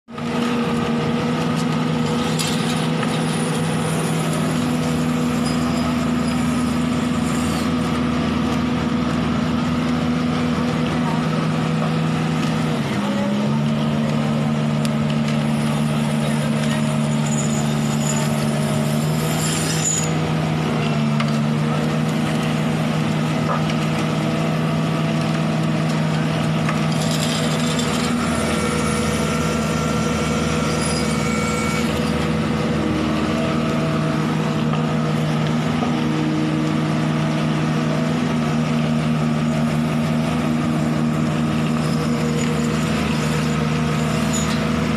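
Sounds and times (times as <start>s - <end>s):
diesel engine droning: 0.1s - 44.9s.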